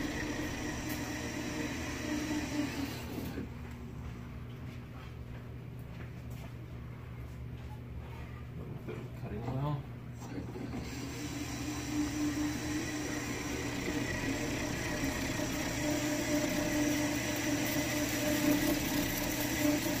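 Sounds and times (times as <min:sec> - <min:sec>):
drill press humming and whining: 0:00.0 - 0:03.8, 0:10.3 - 0:20.0
cutter grinding in steel: 0:10.8 - 0:20.0.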